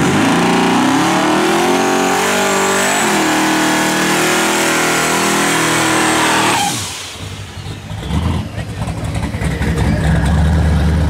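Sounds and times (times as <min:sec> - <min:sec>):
car engine revving high: 0:00.0 - 0:08.5.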